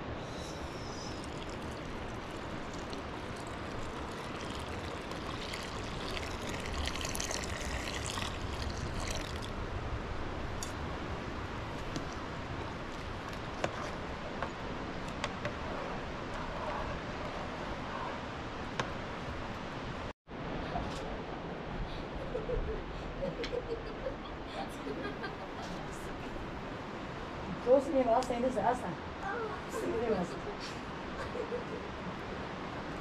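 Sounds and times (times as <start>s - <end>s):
milk pouring and splashing: 1.2s - 9.6s.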